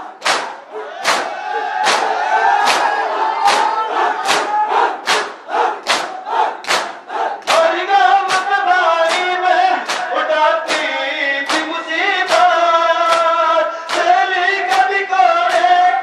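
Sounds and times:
hands slapping chests: 0:00.2 - 0:11.7, 0:12.3 - 0:14.1, 0:14.7 - 0:14.9
men singing a lament: 0:07.2 - 0:16.0.

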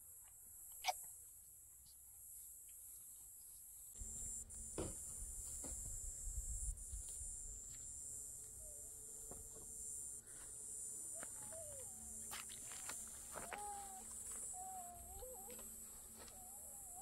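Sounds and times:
insects chorus: 0:00.0 - 0:17.0
animal calls: 0:13.3 - 0:17.0.

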